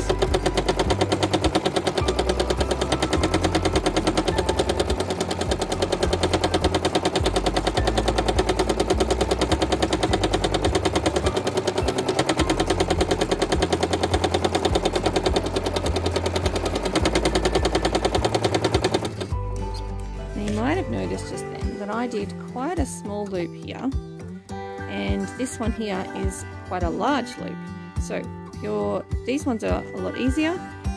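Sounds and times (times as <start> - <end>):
sewing machine rattling: 0.0 - 19.8.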